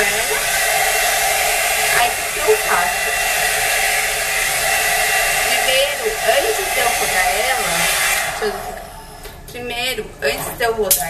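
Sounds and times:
hot-air brush blowing air: 0.0 - 9.2.

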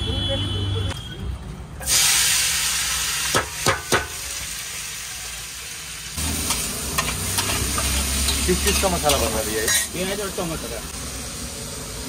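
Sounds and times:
onion and tomato sizzling on griddle: 1.8 - 12.0
metal spatula striking griddle: 3.3 - 4.1.

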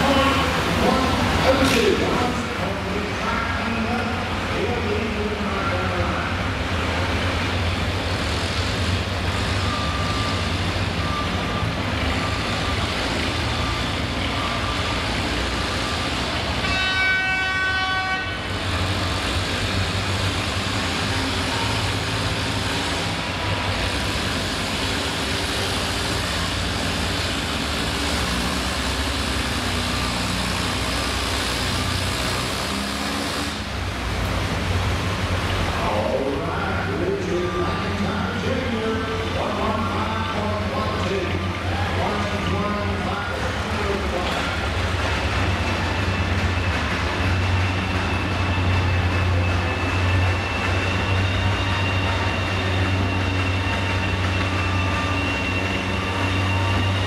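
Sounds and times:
tractor engine running: 0.0 - 16.6, 18.5 - 57.0
horn: 16.6 - 18.6.

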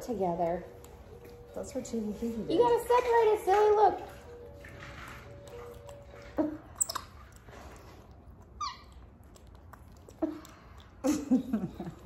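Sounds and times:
monkey squeaking: 6.4 - 7.3, 8.6 - 9.1.

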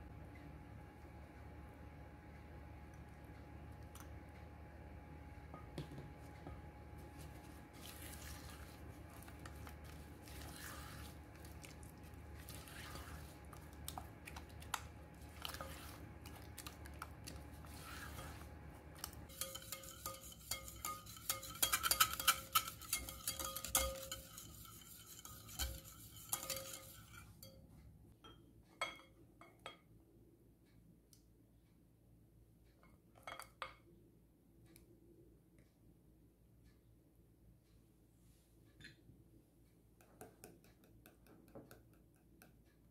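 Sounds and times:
spatula scraping a glass bowl: 7.3 - 11.8, 12.4 - 13.6, 15.3 - 16.4, 17.2 - 27.5.

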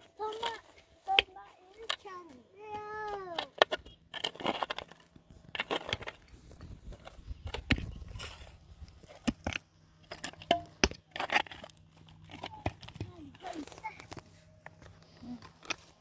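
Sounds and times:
crackling scrapes: 3.2 - 10.2.

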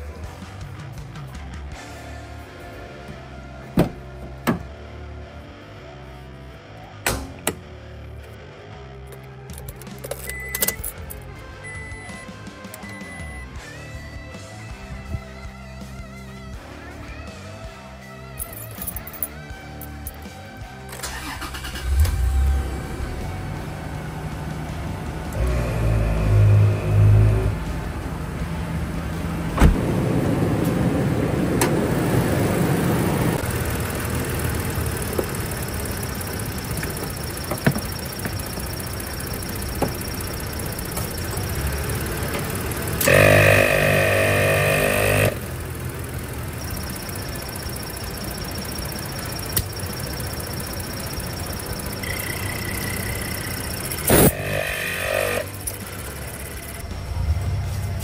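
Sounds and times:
air compressor running: 31.8 - 56.8.

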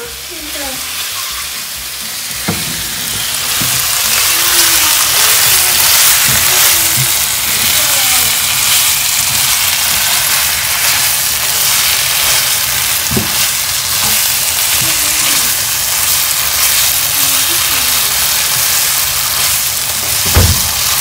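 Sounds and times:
food sizzling in a pan: 0.0 - 21.0
spoon knocking a pan: 2.3 - 3.9.

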